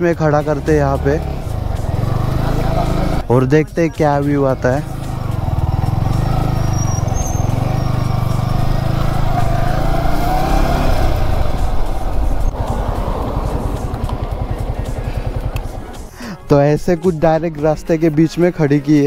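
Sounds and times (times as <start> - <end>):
motorcycle engine running: 0.2 - 3.3, 4.2 - 16.1.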